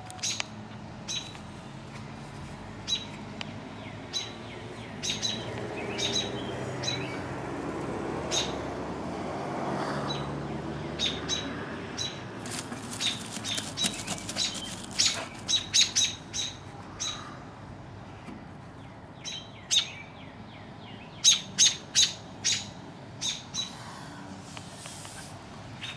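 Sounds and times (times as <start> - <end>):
robins chirping: 0.1 - 1.5, 2.8 - 7.3, 8.3 - 8.6, 10.1 - 17.4, 18.8 - 23.8.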